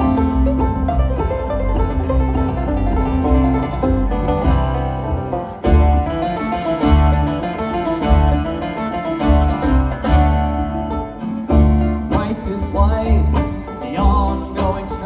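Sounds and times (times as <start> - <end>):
bluegrass band playing: 0.0 - 15.0
picked banjo: 0.0 - 15.0.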